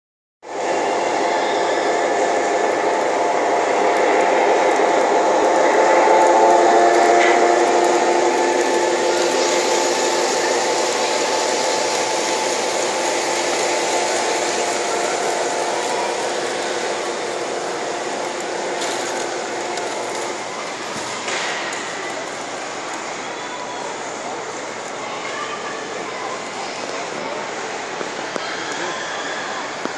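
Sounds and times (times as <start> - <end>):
toy train wheels rattling on track: 3.8 - 22.7.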